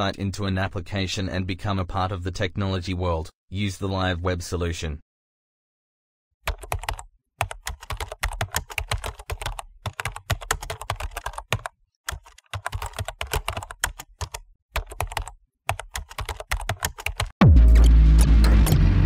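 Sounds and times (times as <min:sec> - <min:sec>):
fast keyboard typing: 0:06.5 - 0:17.4
deep falling bass tone: 0:17.4 - 0:19.0
loud music: 0:17.4 - 0:19.0.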